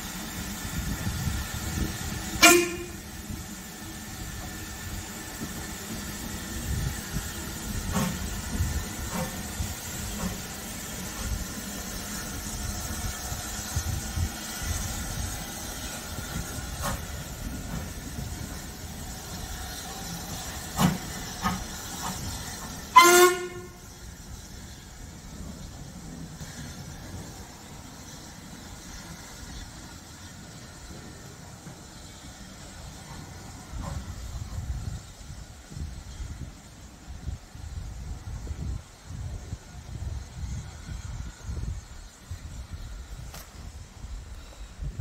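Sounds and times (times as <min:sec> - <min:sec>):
steam hissing: 0:00.0 - 0:45.0
steam locomotive exhaust beats: 0:00.0 - 0:45.0
steam whistle blast: 0:02.4 - 0:03.1, 0:22.9 - 0:23.9.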